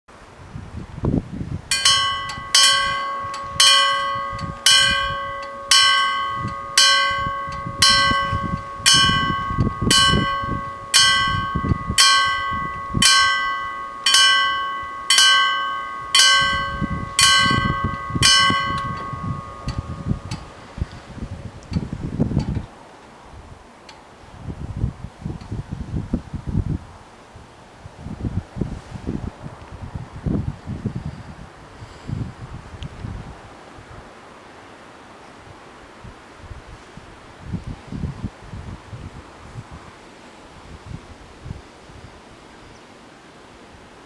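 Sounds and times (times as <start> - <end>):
level crossing warning bells: 1.7 - 21.1.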